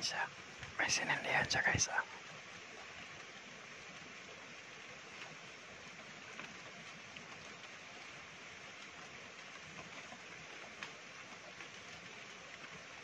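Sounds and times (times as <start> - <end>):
faint hiss: 0.0 - 13.0
soft ticks: 8.7 - 12.9.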